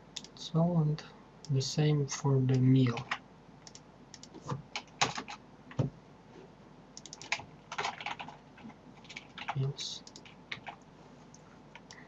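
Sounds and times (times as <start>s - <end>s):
computer keyboard keystrokes: 7.0s - 10.8s.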